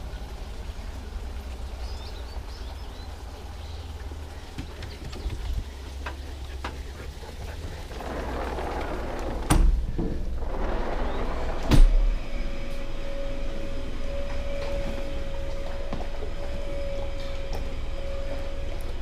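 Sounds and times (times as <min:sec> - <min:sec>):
sliding glass door opening and shutting: 0:07.9 - 0:15.6
steady hum: 0:08.7 - 0:19.0.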